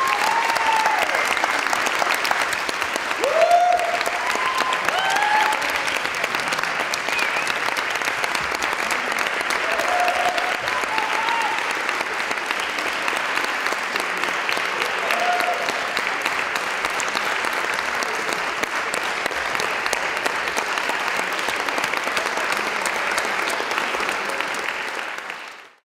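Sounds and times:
audience applauding: 0.0s - 25.8s
crowd calling out: 9.6s - 11.7s, 14.8s - 15.9s.

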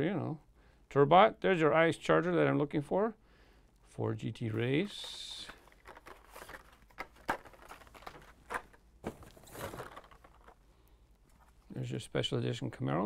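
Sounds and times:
plastic and card clicking and rustling: 4.5s - 11.7s.

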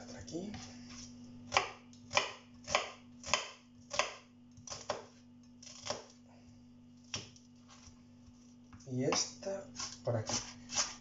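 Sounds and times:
knife chopping on plastic board: 1.5s - 6.1s, 9.0s - 11.0s.

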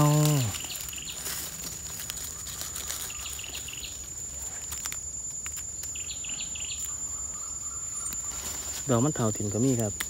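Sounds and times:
high-pitched insect drone: 0.0s - 10.0s
chirping calls: 2.1s - 4.2s, 5.6s - 9.9s.

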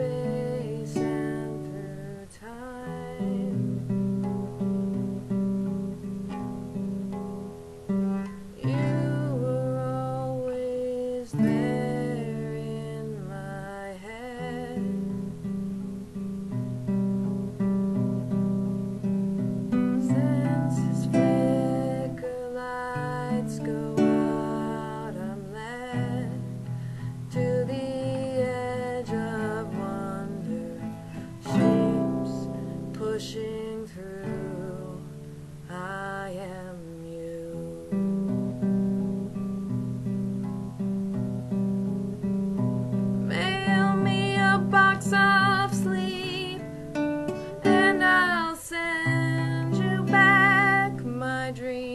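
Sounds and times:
woman singing: 0.0s - 5.4s, 8.1s - 16.2s, 19.7s - 38.8s, 43.2s - 51.9s
nylon-string guitar strumming: 0.0s - 51.9s.

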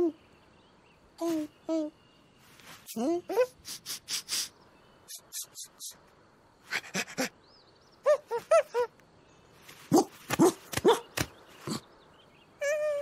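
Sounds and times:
cartoon dog yipping and barking: 9.9s - 11.2s.

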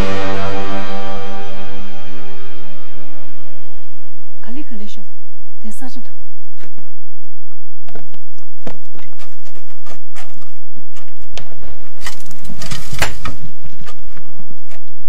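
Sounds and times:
hands and body knocking on stone: 7.8s - 14.8s.

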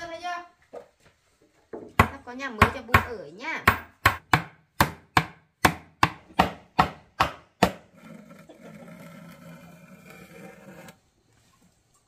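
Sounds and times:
mallet pounding wooden box: 1.9s - 7.9s.

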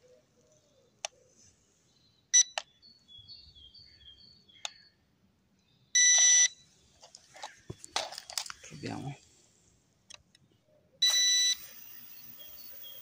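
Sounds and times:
remote controller beeps: 6.0s - 6.6s, 11.0s - 13.0s
light handling noise: 6.9s - 9.0s.

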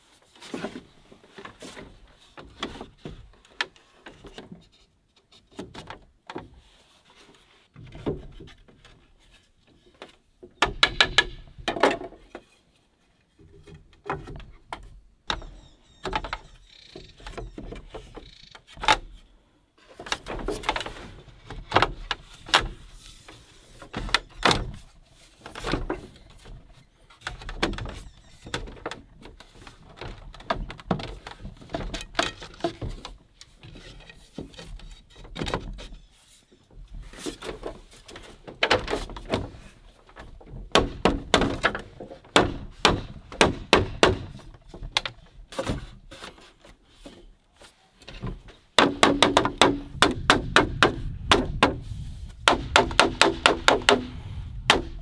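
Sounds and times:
bamboo poles knocking: 10.0s - 12.5s, 25.4s - 35.9s, 37.2s - 46.5s, 48.1s - 55.0s.

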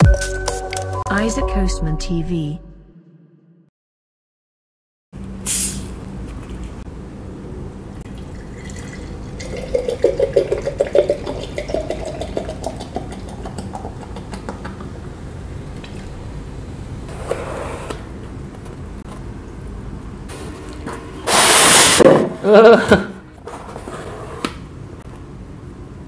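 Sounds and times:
cola glugging into a glass: 8.1s - 14.4s.

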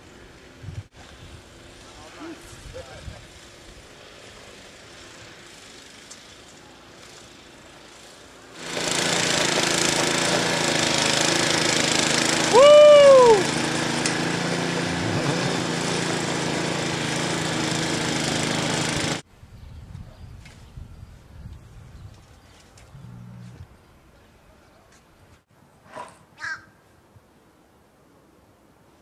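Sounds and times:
snowblower engine running: 3.2s - 19.2s
loud rising and falling call: 12.4s - 16.0s.

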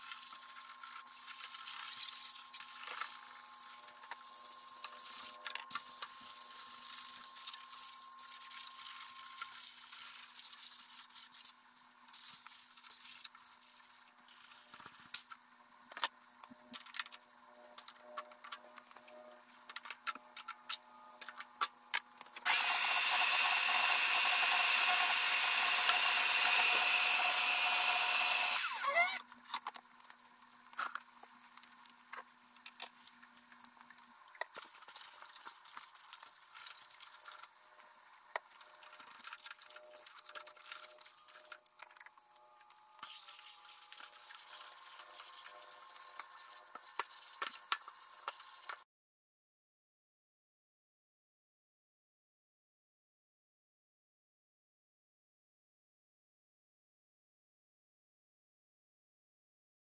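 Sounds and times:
small power tool whining: 22.4s - 29.3s.

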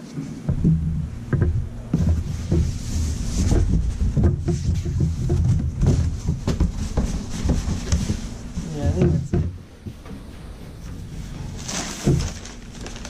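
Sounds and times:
box scraping and knocking on table: 0.5s - 8.3s.

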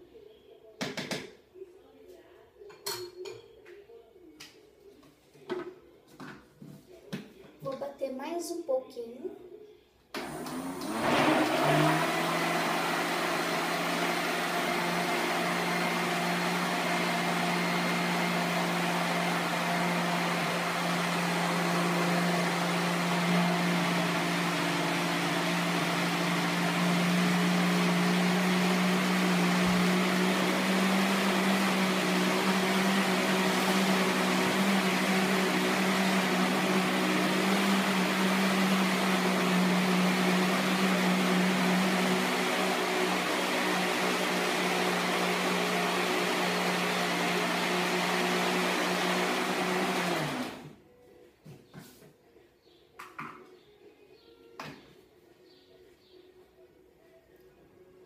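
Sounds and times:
electric blender motor hum: 10.2s - 50.8s.

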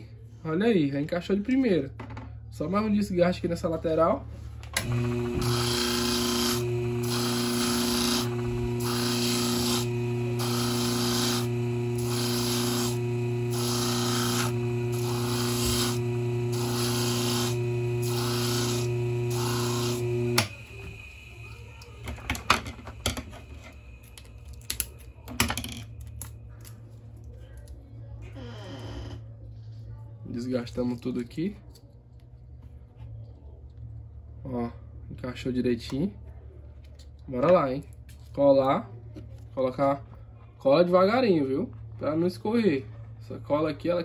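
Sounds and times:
grinder motor humming: 4.8s - 24.3s
sanding noise: 5.4s - 20.0s.

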